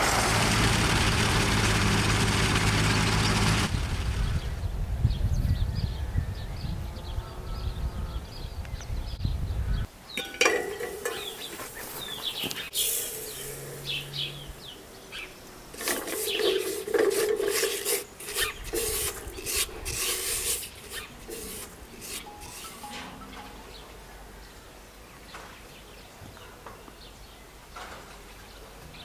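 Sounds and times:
spoon stirring in metal pot: 0:10.2 - 0:11.8, 0:15.8 - 0:22.9.

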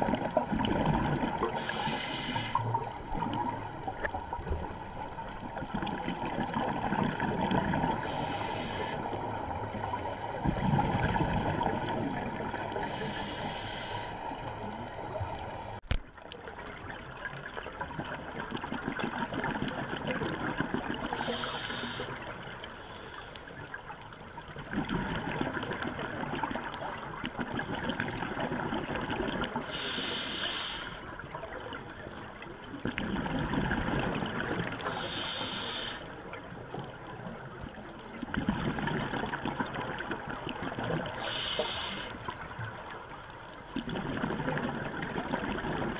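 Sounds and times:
exhaled bubbles: 0:00.0 - 0:13.0, 0:16.7 - 0:21.4, 0:24.6 - 0:29.9, 0:32.8 - 0:35.1, 0:38.2 - 0:41.5, 0:43.7 - 0:45.9
regulator hissing inhale: 0:01.5 - 0:03.0, 0:08.0 - 0:09.2, 0:12.7 - 0:14.5, 0:21.1 - 0:23.8, 0:29.6 - 0:32.4, 0:34.8 - 0:36.2, 0:41.1 - 0:42.4.

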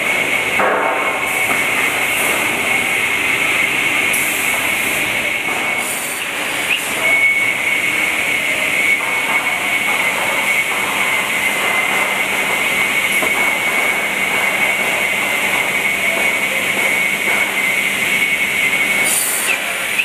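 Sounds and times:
high-pitched whine: 0:00.0 - 0:20.0
woodworking machinery running: 0:00.0 - 0:20.0.

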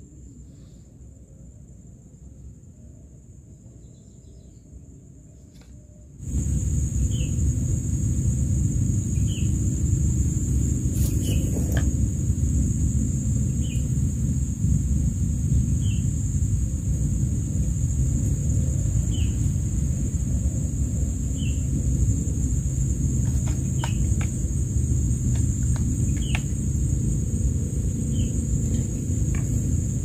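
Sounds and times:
insect drone: 0:00.0 - 0:30.0
wind rumble on microphone: 0:06.2 - 0:30.0.

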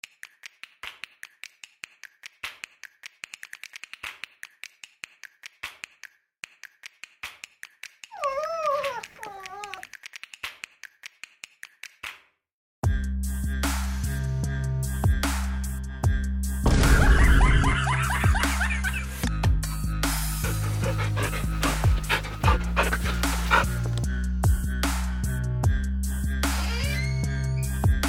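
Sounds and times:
dog whining: 0:08.1 - 0:09.8, 0:20.4 - 0:24.0.

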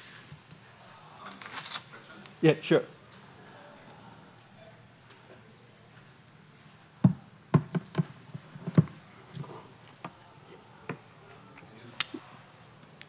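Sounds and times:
microphone handling knocks: 0:07.0 - 0:09.0.

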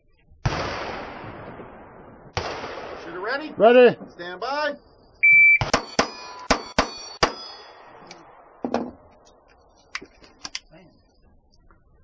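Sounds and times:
pistol shots: 0:02.3 - 0:03.5, 0:05.6 - 0:08.7
steel targets ringing: 0:05.6 - 0:08.4.

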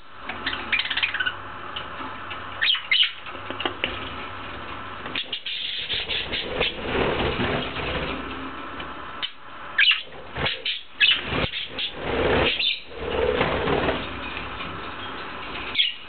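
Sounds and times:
budgerigars chirping: 0:00.4 - 0:01.4, 0:02.6 - 0:03.2, 0:05.2 - 0:06.8, 0:09.2 - 0:12.9, 0:15.8 - 0:16.0
wings fluttering: 0:05.1 - 0:08.6, 0:09.2 - 0:16.0.

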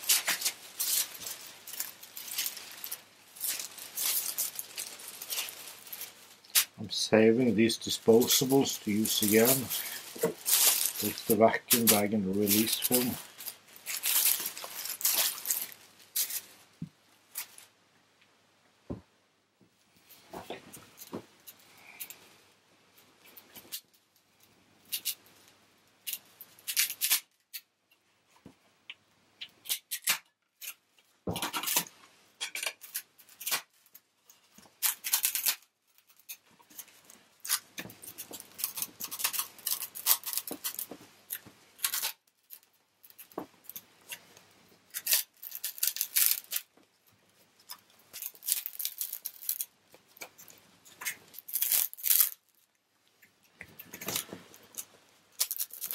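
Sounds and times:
laminate panel crackling and tearing: 0:00.0 - 0:06.8, 0:29.6 - 0:44.2, 0:44.9 - 0:46.7, 0:47.6 - 0:52.5, 0:53.8 - 0:55.9.

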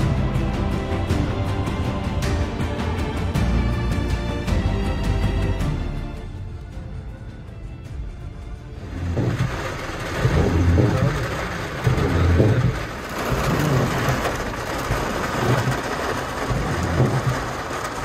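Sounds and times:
low rumble: 0:08.0 - 0:18.0
rain on car windscreen and roof: 0:08.7 - 0:18.0
car engine running: 0:08.8 - 0:18.0.

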